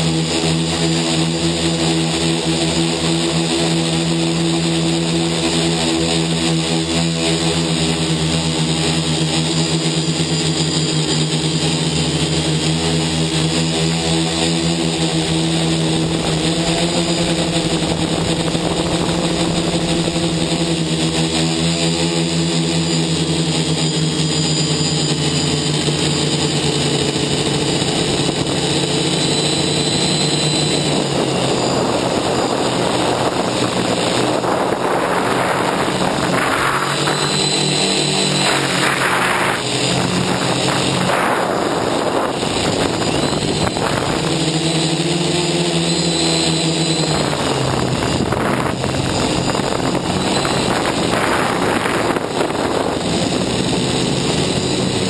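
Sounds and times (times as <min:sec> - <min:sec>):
drone motors buzzing: 0:00.0 - 0:55.0
rush of air: 0:30.6 - 0:44.4.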